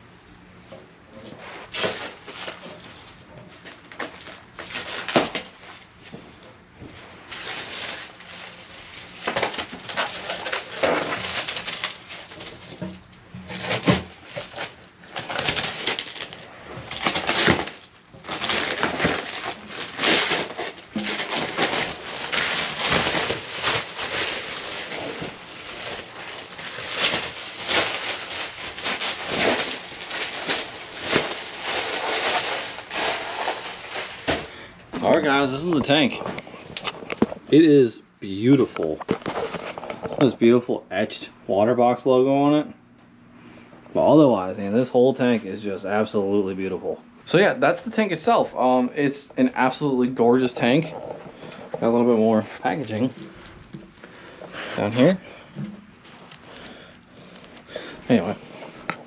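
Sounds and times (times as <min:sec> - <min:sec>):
plastic wrap crinkling: 0:00.0 - 0:37.5, 0:49.7 - 0:59.0.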